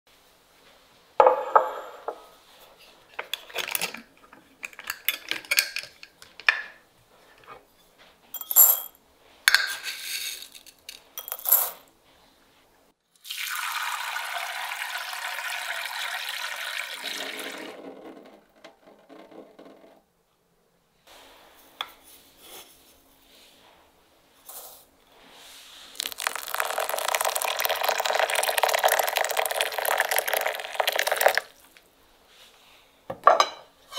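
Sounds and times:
rice rattling into glass bowl: 0:09.8 - 0:11.7, 0:26.0 - 0:31.8
water pouring onto rice: 0:13.2 - 0:17.7, 0:26.0 - 0:31.8
tap water running: 0:13.2 - 0:17.8, 0:26.0 - 0:31.8.

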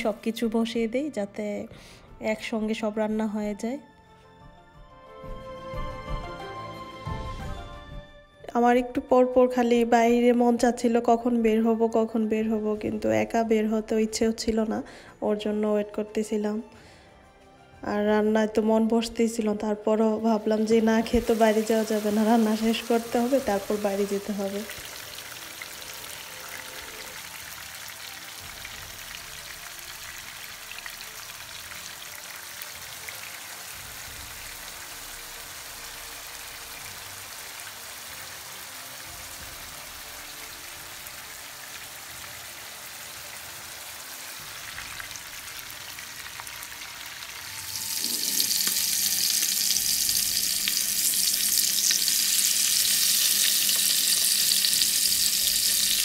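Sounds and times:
gravy sizzling in oil: 0:20.2 - 0:56.0
fish frying in hot oil: 0:20.6 - 0:56.0.

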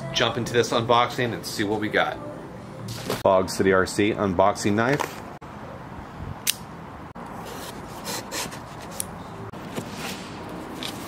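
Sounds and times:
sharp click: 0:06.4 - 0:06.7.

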